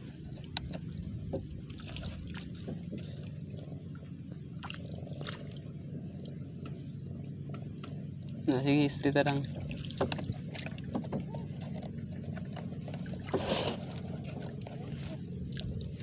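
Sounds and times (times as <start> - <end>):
steady low rumble: 0.0 - 16.0
water sloshing: 0.0 - 16.0.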